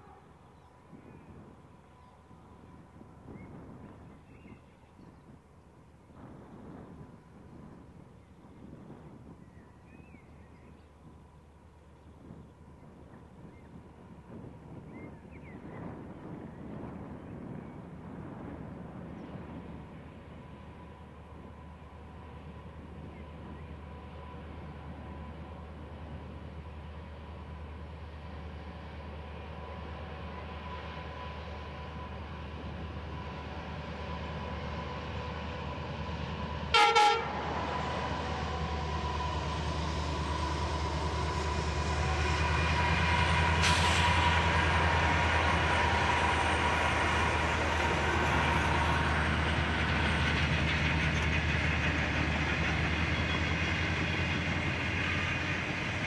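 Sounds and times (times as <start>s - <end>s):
train horn blast: 0.0s - 0.4s, 36.7s - 39.0s
diesel locomotive rumble: 11.1s - 56.0s.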